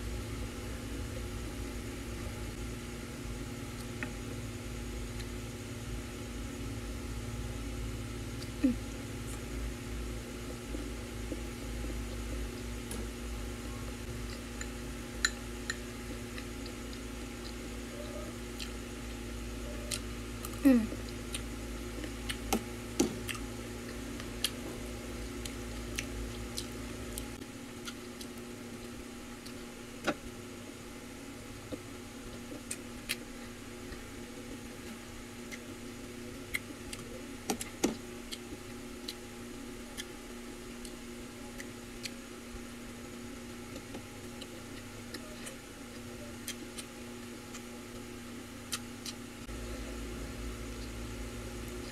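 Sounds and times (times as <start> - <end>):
electric fan humming: 0.0 - 51.9
chewing mouth noises: 25.4 - 29.7.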